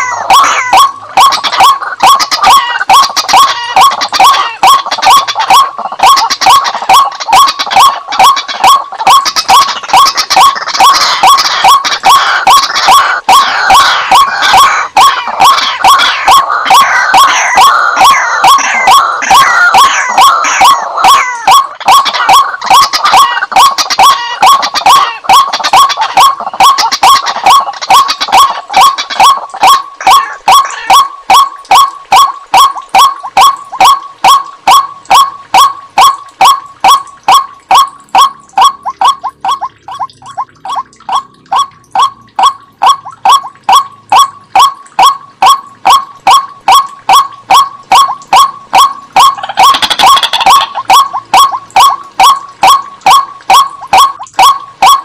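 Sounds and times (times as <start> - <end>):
bird calling: 0.0 - 55.0.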